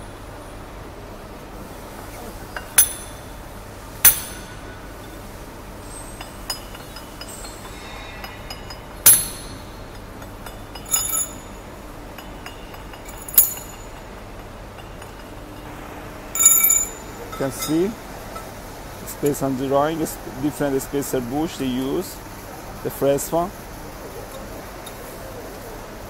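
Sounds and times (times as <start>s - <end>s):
steady low hum: 0.0s - 26.0s
metallic clinks: 2.6s - 3.4s, 5.9s - 15.7s, 16.4s - 18.6s.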